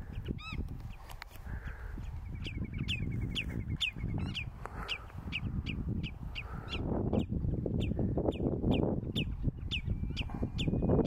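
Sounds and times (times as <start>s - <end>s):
redshank calling: 0.1s - 11.0s.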